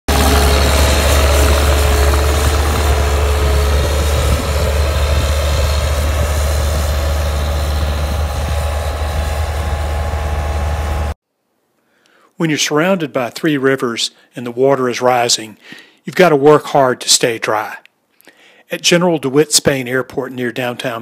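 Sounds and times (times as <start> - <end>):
diesel engine running with whine: 0.1 - 11.2.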